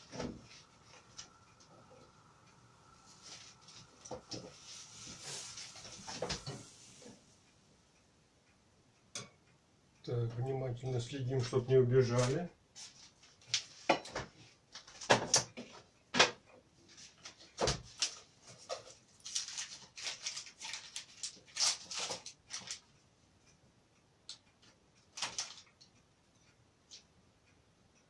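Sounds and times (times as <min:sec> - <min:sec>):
water boiling with pops and sputters: 0:00.0 - 0:07.6, 0:12.7 - 0:23.0.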